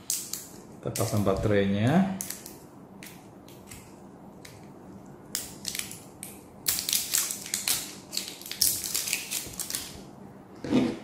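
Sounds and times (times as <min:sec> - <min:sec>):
plastic crinkling: 0:05.5 - 0:10.0.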